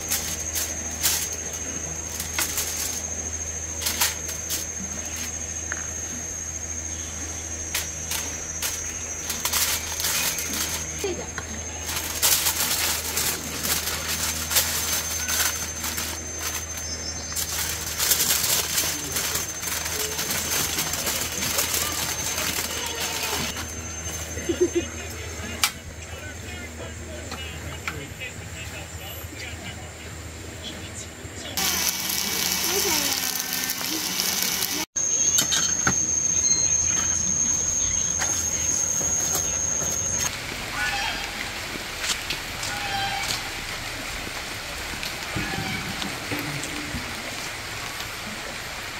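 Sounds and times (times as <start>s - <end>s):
aluminium foil crinkling: 0.0s - 5.6s, 7.6s - 24.8s, 31.6s - 34.9s
high-pitched insect whine: 0.0s - 25.6s, 31.6s - 40.4s
steady low hum: 0.0s - 42.6s
fish sizzling on griddle: 31.6s - 35.2s.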